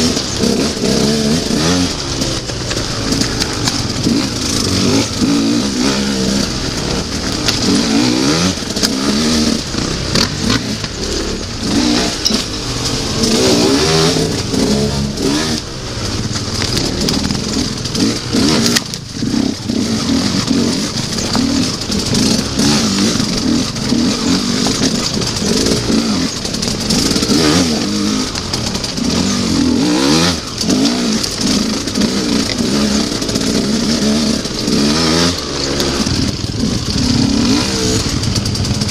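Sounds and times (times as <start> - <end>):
dirt bike engine revving: 0.0 - 38.9.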